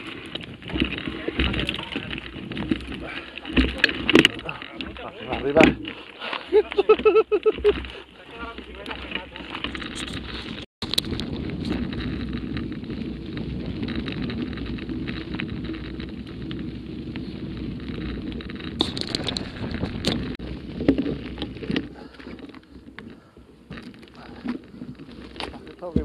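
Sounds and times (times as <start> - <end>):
bike tyres crunching on gravel: 0.0 - 26.0
wind on microphone: 9.9 - 23.4.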